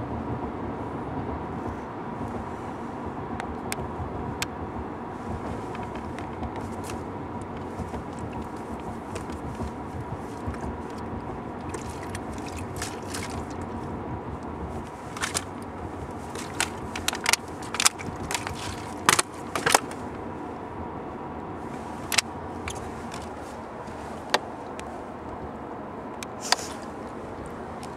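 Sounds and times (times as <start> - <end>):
car road and engine noise: 0.0 - 27.9
sharp clicks and knocks: 14.9 - 20.2.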